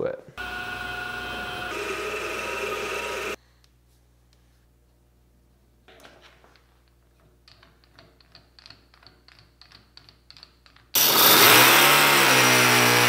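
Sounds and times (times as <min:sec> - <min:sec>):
model engine running: 0:00.4 - 0:03.4.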